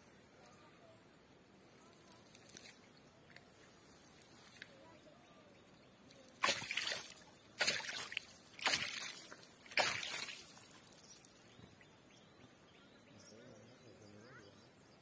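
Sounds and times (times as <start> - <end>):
fish splashing at water surface: 6.4 - 11.3.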